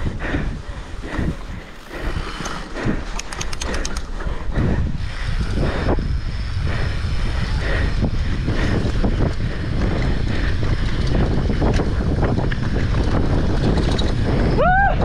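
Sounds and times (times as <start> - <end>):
bike rumbling and rattling on trail: 0.0 - 15.0
wind buffeting microphone: 0.0 - 15.0
sharp ticks: 2.0 - 4.4.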